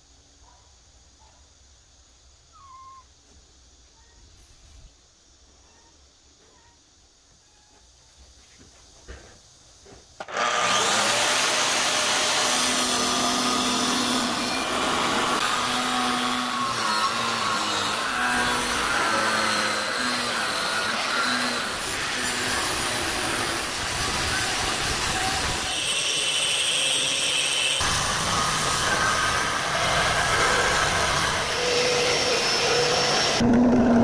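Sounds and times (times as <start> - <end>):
angle grinder cutting steel: 10.2 - 34.0.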